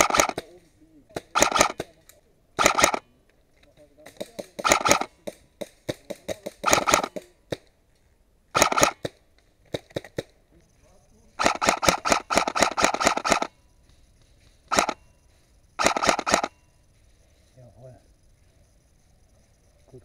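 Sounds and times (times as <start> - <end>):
airsoft rifle firing rapid clicks: 0.0 - 0.5, 1.2 - 2.0, 2.6 - 3.1, 4.0 - 7.7, 8.5 - 10.4, 11.4 - 13.6, 14.7 - 15.0, 15.8 - 16.6.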